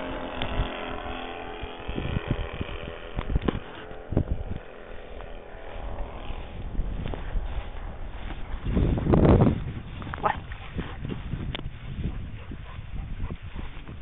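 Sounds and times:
aeroplane engine droning: 0:00.0 - 0:14.0.

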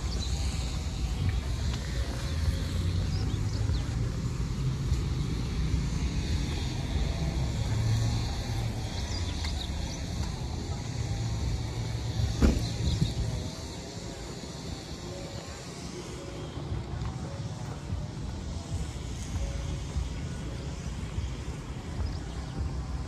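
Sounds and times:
vehicle low rumble: 0:00.0 - 0:23.0
sharp knock: 0:12.4 - 0:12.8.

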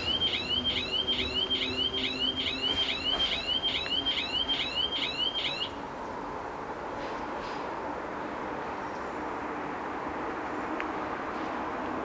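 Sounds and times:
level crossing warning bells: 0:00.0 - 0:05.8.

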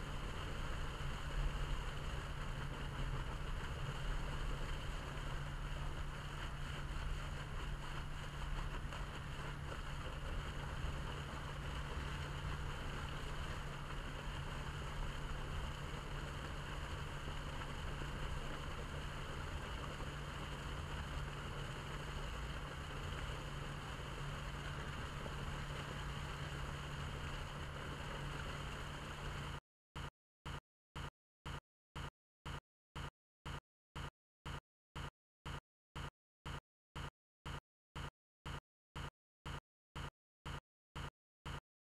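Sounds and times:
water rushing from pipe: 0:00.0 - 0:29.6.

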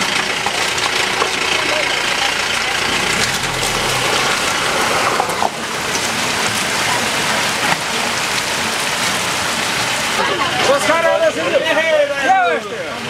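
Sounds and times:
vehicle engine driving off: 0:00.0 - 0:09.9
steady rain falling: 0:00.0 - 0:13.0.

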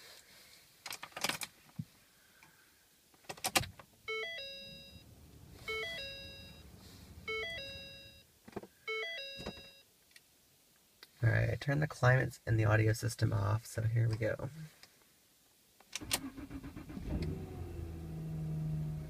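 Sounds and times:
dashboard warning chime: 0:04.1 - 0:08.3, 0:08.9 - 0:09.8
ignition clicks: 0:15.9 - 0:17.6.

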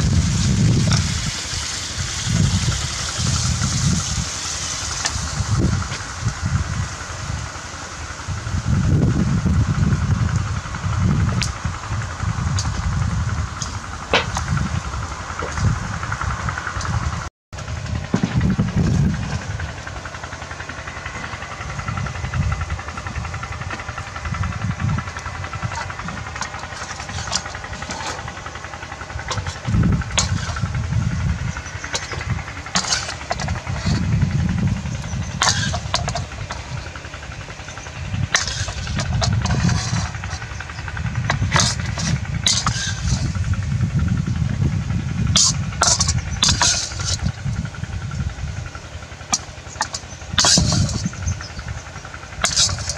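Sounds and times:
low uneven rumble: 0:00.0 - 0:52.9
metal spatula scraping wok: 0:25.6 - 0:30.8, 0:31.8 - 0:34.1, 0:35.0 - 0:36.9, 0:37.6 - 0:43.4, 0:45.4 - 0:47.4, 0:49.3 - 0:51.3, 0:52.4 - 0:52.9.

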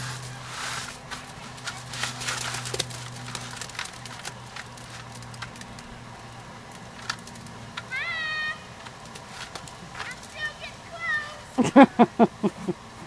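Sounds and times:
wet concrete sliding out: 0:00.0 - 0:05.8
low steady hum: 0:00.0 - 0:13.0.

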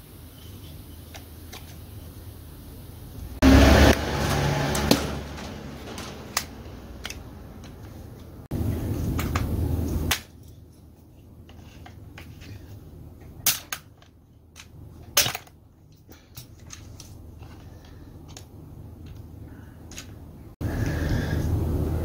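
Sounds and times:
steady low rumble: 0:16.6 - 0:22.0.

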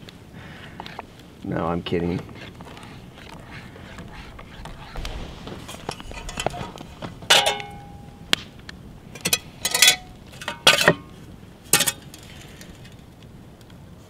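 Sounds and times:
metal cookware clanking: 0:06.0 - 0:08.2, 0:09.1 - 0:11.1, 0:11.7 - 0:12.3.

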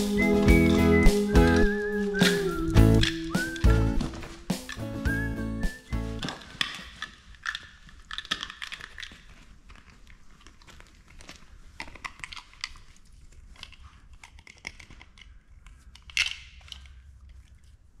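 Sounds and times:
dog chewing with crunches: 0:06.3 - 0:15.4.

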